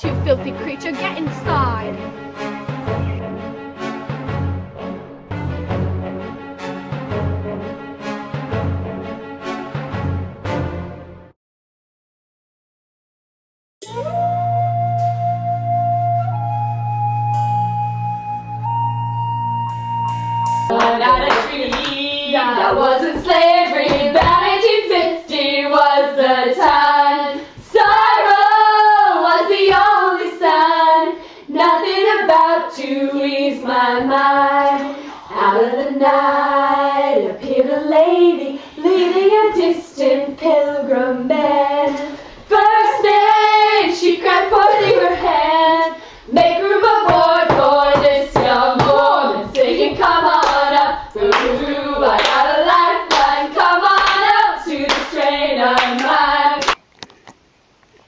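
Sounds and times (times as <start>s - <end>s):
hand-clapping: 20.7s - 22.1s, 51.3s - 56.8s
young voices singing together: 20.7s - 56.8s.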